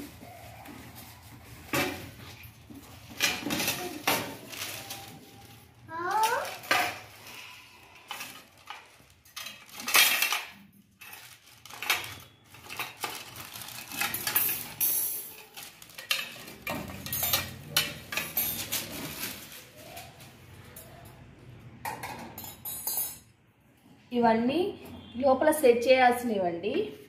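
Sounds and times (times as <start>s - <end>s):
plastic wrapping crinkling: 0.0s - 20.6s.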